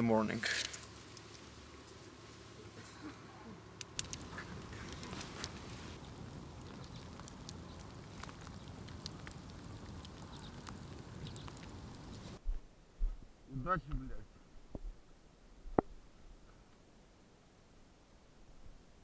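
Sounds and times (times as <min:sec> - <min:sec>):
campfire crackling: 0:00.0 - 0:12.6.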